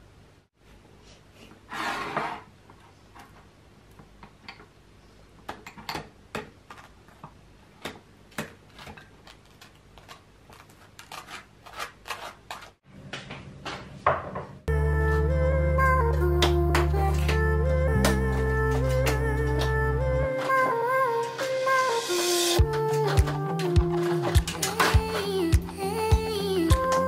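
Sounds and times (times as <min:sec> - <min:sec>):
knife scraping toast: 0:10.5 - 0:12.7.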